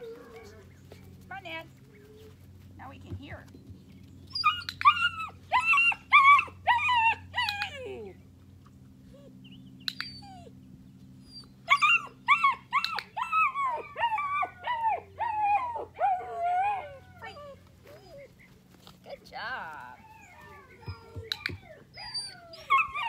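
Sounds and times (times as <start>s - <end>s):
puppy whining: 0.0s - 1.1s, 4.3s - 8.1s, 9.1s - 18.7s, 19.8s - 23.0s.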